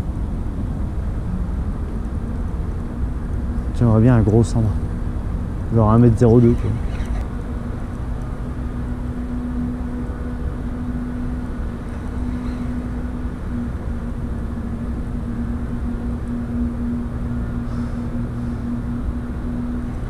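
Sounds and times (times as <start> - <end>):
boat engine humming: 0.0 - 20.0.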